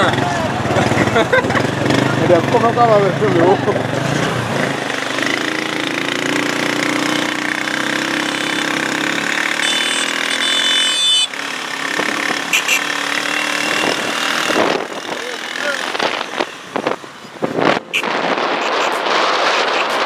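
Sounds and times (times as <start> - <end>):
vehicle engines passing: 0.0 - 20.0.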